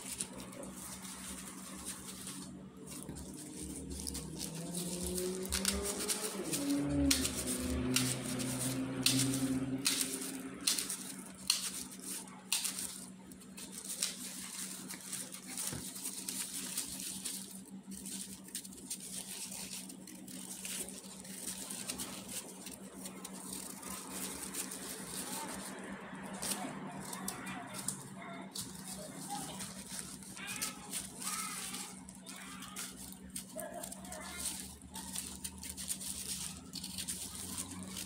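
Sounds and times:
knife scraping apple peel: 0:00.0 - 0:38.0
plastic gloves crinkling: 0:00.0 - 0:38.0.

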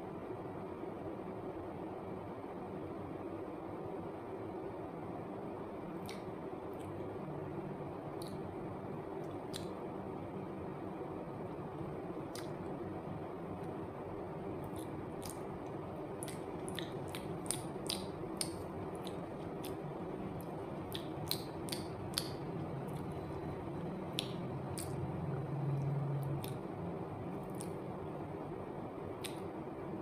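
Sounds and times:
low background hum: 0:00.0 - 0:30.0
chewing with wet lip smacks: 0:06.0 - 0:07.0, 0:09.2 - 0:09.8, 0:12.3 - 0:12.6, 0:14.6 - 0:23.4, 0:24.1 - 0:25.0, 0:25.8 - 0:26.7, 0:27.4 - 0:27.8.

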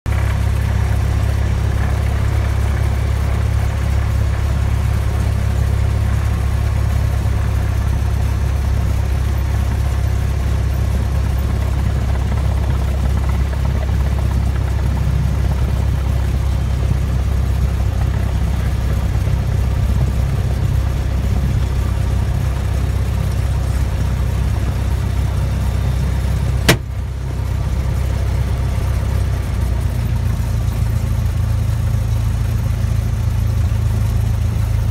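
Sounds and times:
airplane engine and propeller droning: 0:00.1 - 0:34.9
sharp click: 0:26.7 - 0:26.9.

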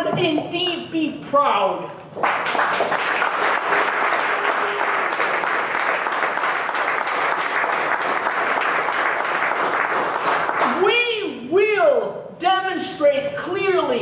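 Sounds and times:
audience applauding: 0:02.2 - 0:10.8.

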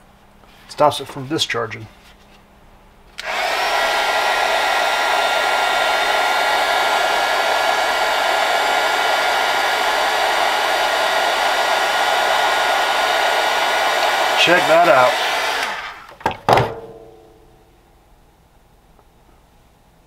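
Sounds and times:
heat gun blowing air: 0:03.2 - 0:16.2.

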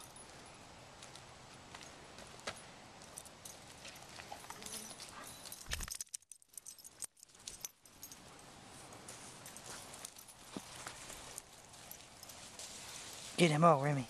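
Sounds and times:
footsteps crunching dry leaves: 0:09.1 - 0:14.0.

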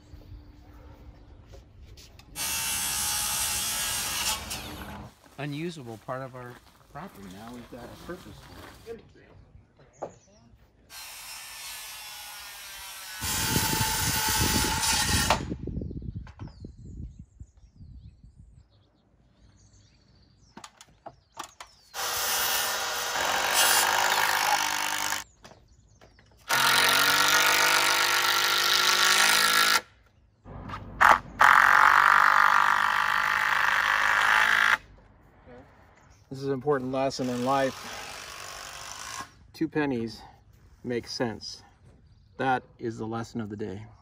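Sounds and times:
power drill driving screws: 0:21.9 - 0:25.2, 0:26.4 - 0:29.8, 0:37.2 - 0:39.4.

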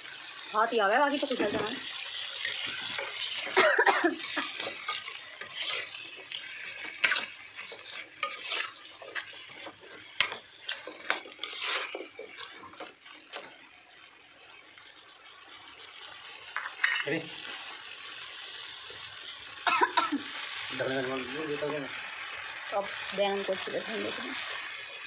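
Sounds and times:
spoon scraping frying pan: 0:01.2 - 0:13.6, 0:16.5 - 0:17.7
spoon clinking on pan: 0:16.6 - 0:17.1.

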